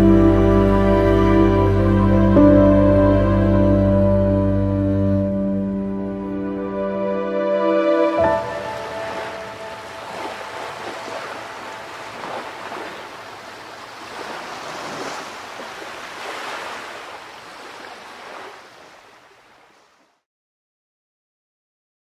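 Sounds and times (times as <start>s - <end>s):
ocean waves breaking: 7.9s - 20.2s.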